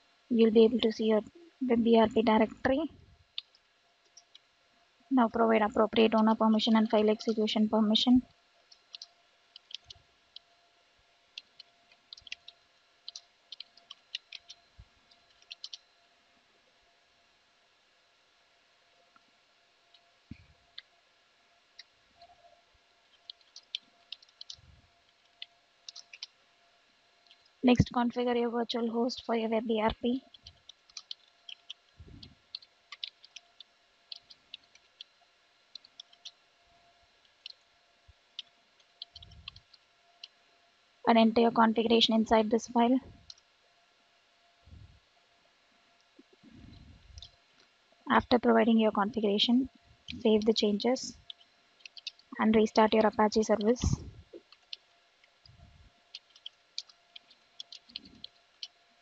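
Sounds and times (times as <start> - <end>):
keyboard typing: 8.7 - 10.5, 11.3 - 15.9, 23.1 - 26.4, 30.0 - 36.4, 38.3 - 40.4, 50.1 - 54.8, 56.1 - 58.8.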